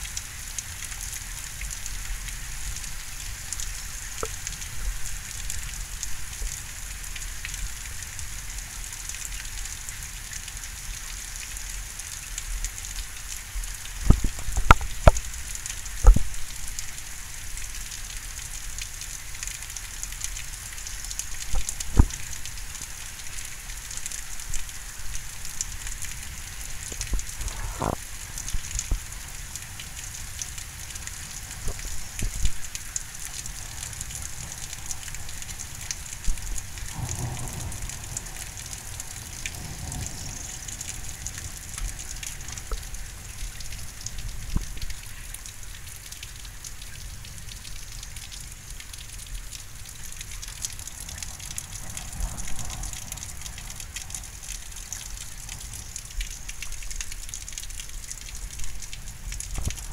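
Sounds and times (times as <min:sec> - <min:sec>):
rain falling steadily: 0:00.0 - 0:59.9
low thunder rumble: 0:36.2 - 0:43.0.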